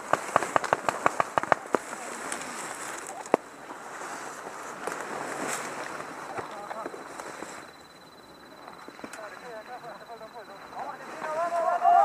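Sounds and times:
paintball markers firing: 0.1 - 1.8.

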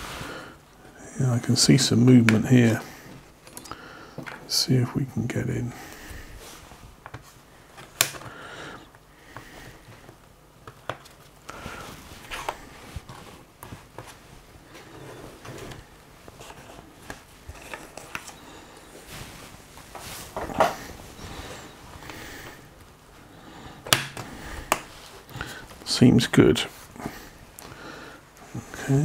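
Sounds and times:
plastic tool prying laptop cover: 23.9 - 24.9.

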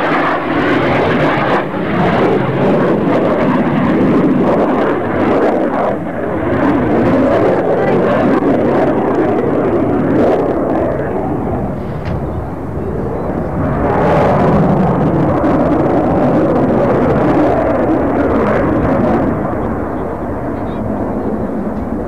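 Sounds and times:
aircraft engines rumbling: 0.0 - 22.0
wind buffeting microphone: 0.0 - 22.0.

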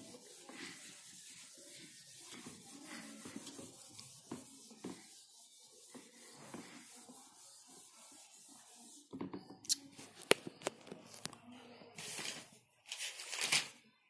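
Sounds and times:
whiteboard wiping strokes: 0.0 - 9.2.

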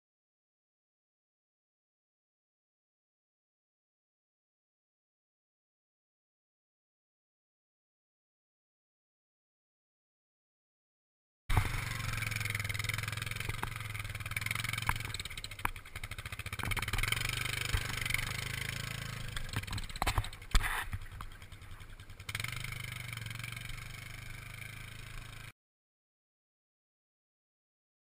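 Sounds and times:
quad bike engines droning: 11.5 - 25.5
sharp clicks: 14.7 - 15.9.

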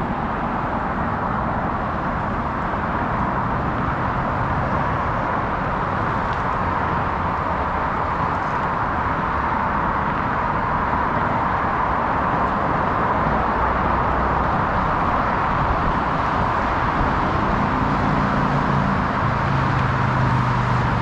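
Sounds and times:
highway traffic rushing: 0.0 - 21.0.

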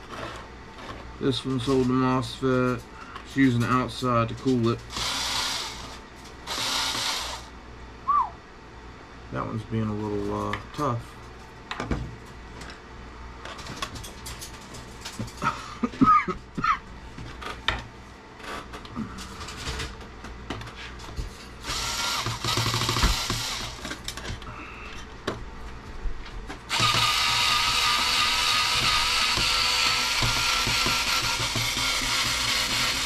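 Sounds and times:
electric screwdriver whirring: 4.9 - 7.5, 21.6 - 23.9, 26.7 - 33.0.

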